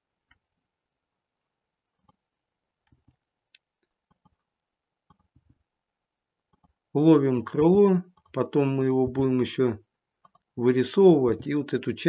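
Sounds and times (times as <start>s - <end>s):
computer mouse clicks: 2.0s - 2.2s, 2.8s - 4.4s, 5.0s - 5.6s, 6.5s - 6.8s, 7.4s - 8.9s, 10.2s - 10.5s.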